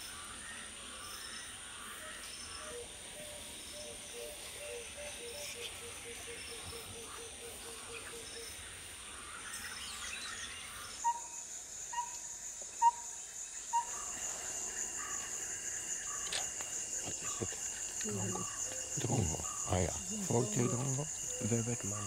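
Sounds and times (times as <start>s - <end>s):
high-pitched insect drone: 9.2s - 22.0s.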